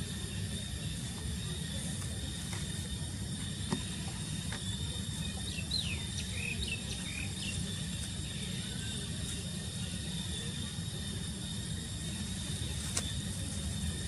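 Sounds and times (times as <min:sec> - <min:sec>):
high insect drone: 0:00.0 - 0:14.0.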